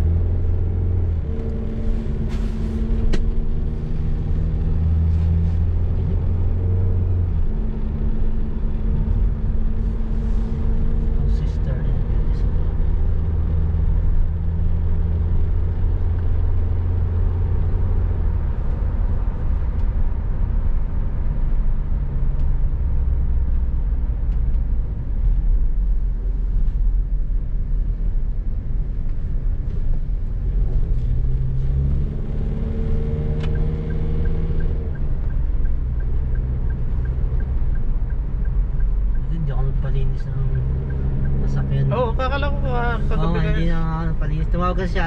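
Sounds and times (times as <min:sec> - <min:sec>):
car engine: 0:00.0 - 0:45.0
road rumble: 0:00.0 - 0:45.0
regular light ticking: 0:34.2 - 0:42.6.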